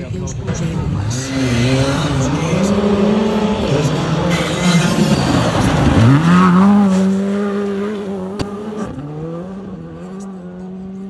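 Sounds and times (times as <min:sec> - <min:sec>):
rally car engine at high revs: 0:00.0 - 0:11.0.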